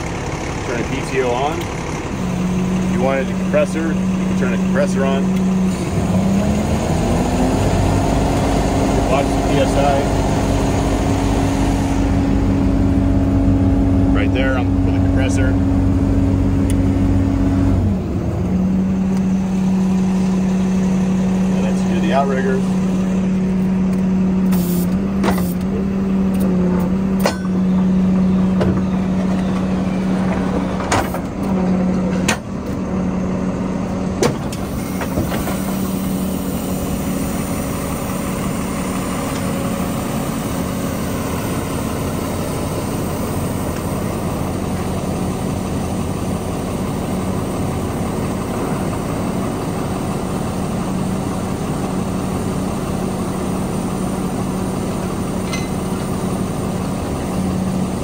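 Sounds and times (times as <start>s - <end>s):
truck engine droning: 0.0s - 58.0s.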